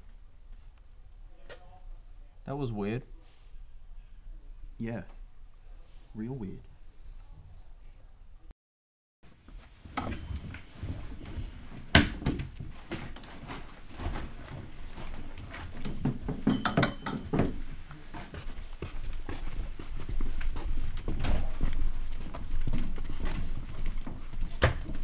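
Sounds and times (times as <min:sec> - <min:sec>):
footsteps: 0:09.3 - 0:25.0
handling and shuffling noises: 0:09.3 - 0:25.0
books and bags thudding on desks: 0:09.8 - 0:17.7, 0:20.5 - 0:25.0.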